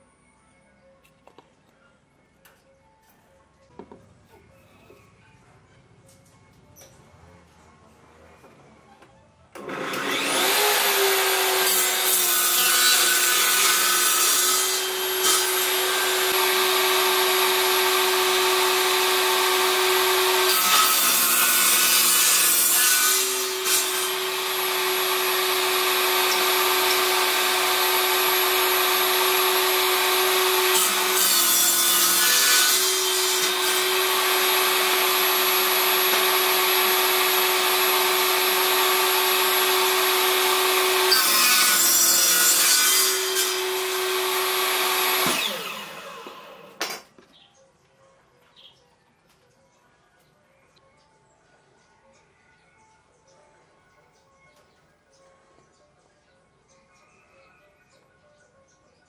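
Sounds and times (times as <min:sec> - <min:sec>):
saw rasping through wood: 0:09.6 - 0:46.8
table saw motor hum: 0:09.6 - 0:46.8.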